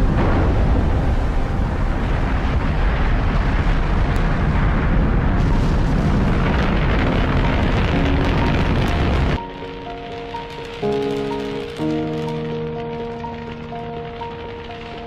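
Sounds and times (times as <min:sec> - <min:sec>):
rocket engines roaring: 0:00.0 - 0:15.0.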